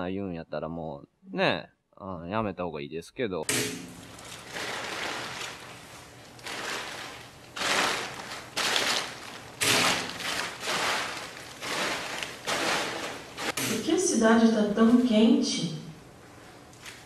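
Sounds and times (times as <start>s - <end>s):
plastic sheeting crinkling underfoot: 4.0s - 13.6s, 16.3s - 17.0s.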